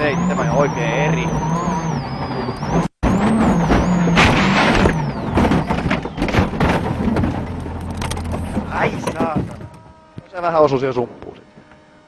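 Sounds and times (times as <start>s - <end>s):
rally car engine running: 0.0s - 10.8s
car tumbling knocks and scrapes: 2.0s - 10.0s
car crashing crunch: 3.0s - 10.0s.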